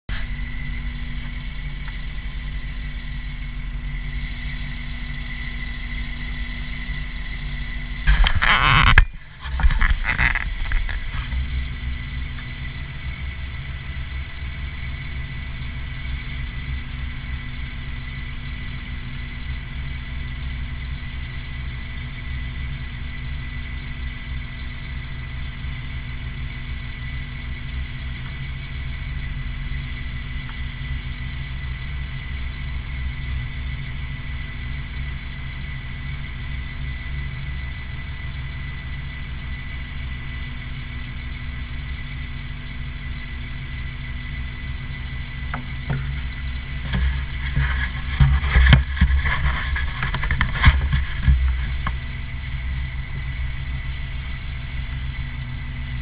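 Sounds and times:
diesel engine idling: 0.0 - 56.0
thin high whine: 0.1 - 21.0, 28.6 - 56.0
handling noise: 45.5 - 52.1.

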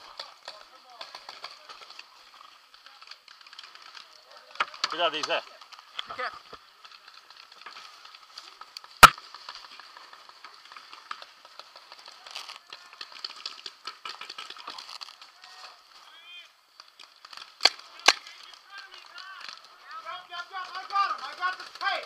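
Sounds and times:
paintball marker pops: 9.0 - 9.2
distant paintball popping: 9.0 - 9.8.

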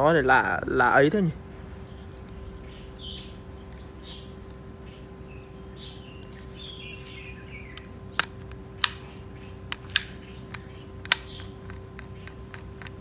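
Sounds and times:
birds chirping faintly: 0.0 - 13.0
faint steady hum: 0.0 - 13.0.

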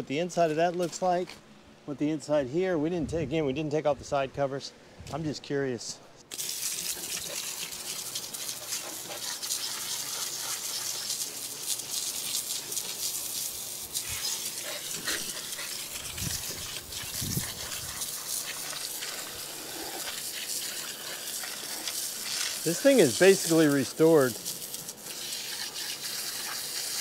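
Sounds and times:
hose water spraying on metal: 6.3 - 27.0.

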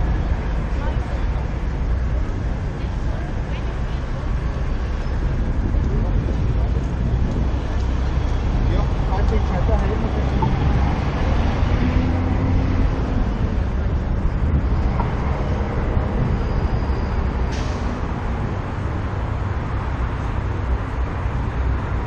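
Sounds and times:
road traffic rumble: 0.0 - 22.0.

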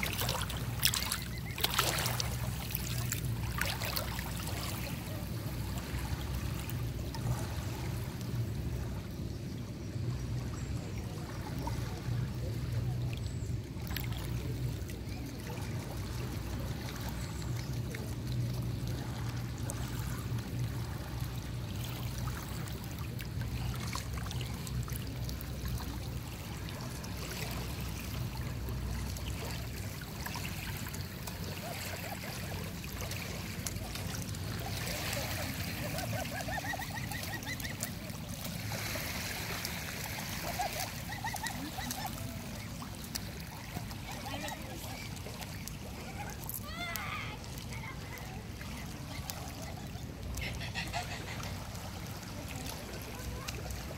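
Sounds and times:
river water trickling over stones: 0.0 - 53.9
short wavering calls: 34.8 - 38.4, 40.3 - 42.8.

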